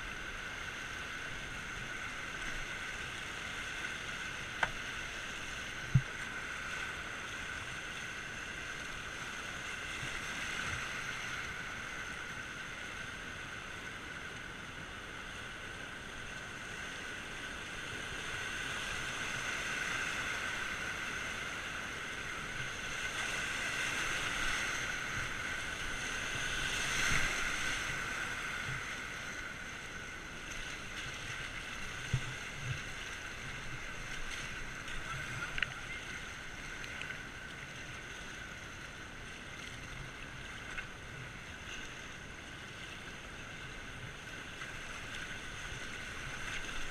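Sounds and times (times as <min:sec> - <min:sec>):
soft paddling knocks: 0:04.5 - 0:04.8, 0:05.8 - 0:06.3.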